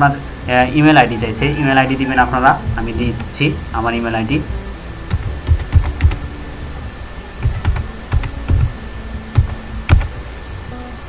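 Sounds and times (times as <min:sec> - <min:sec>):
typing on a computer keyboard: 0:05.1 - 0:06.2, 0:07.4 - 0:08.8, 0:09.4 - 0:10.1.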